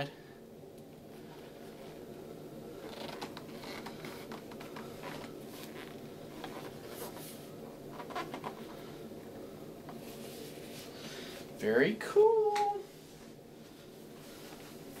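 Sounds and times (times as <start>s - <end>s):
steady low hum: 0.0s - 15.0s
hands handling a hard helmet: 2.8s - 8.8s.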